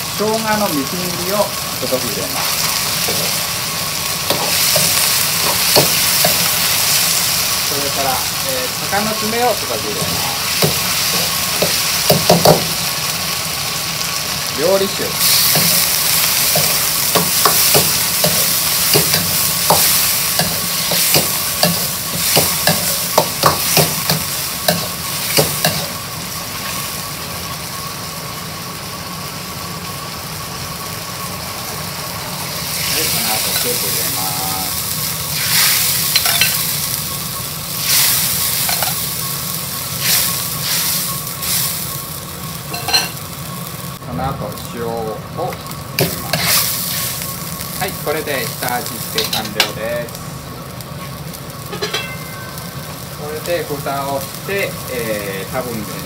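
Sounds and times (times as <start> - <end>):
liquid sizzling in hot wok: 0.0 - 56.0
utensil scraping and knocking wok: 2.3 - 8.3, 8.9 - 13.1, 14.8 - 26.8, 35.4 - 36.8, 37.8 - 39.2, 42.7 - 43.2, 46.0 - 47.3, 51.6 - 52.8.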